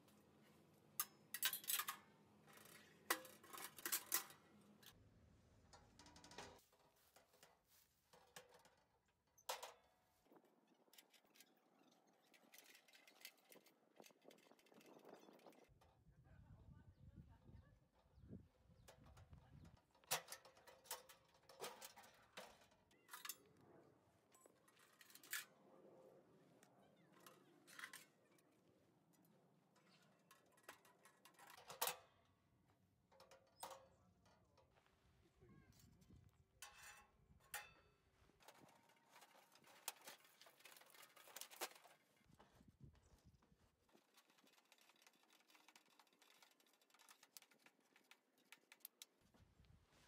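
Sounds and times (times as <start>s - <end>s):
metal stove parts clinking: 1.0s - 2.1s, 36.6s - 41.9s
small clicks and rattles: 1.0s - 5.0s, 5.6s - 9.9s, 10.7s - 15.9s, 18.8s - 23.6s, 29.7s - 34.8s, 38.4s - 42.3s, 43.9s - 49.2s.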